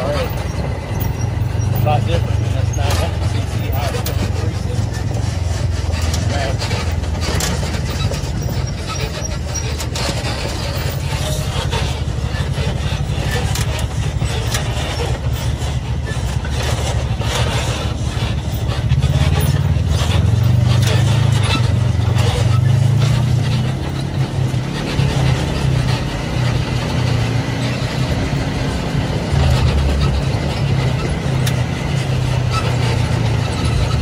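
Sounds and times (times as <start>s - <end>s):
knocks and rattles: 0.0s - 34.0s
utility vehicle engine running: 0.0s - 34.0s.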